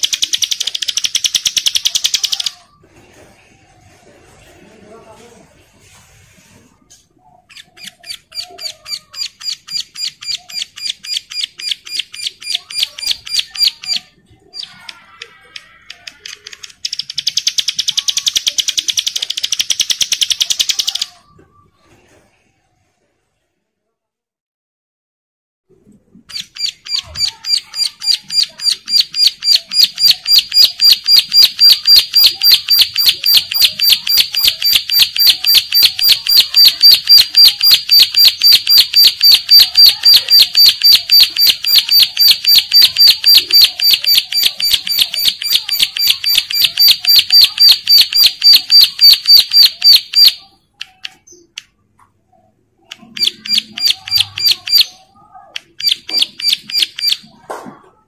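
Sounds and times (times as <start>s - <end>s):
bird singing rapid high notes: 7.5s - 14.8s.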